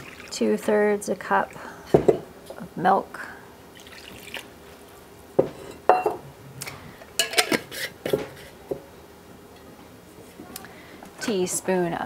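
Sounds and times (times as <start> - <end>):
kitchenware clinking in metal bowl: 5.5 - 6.2, 7.2 - 8.3.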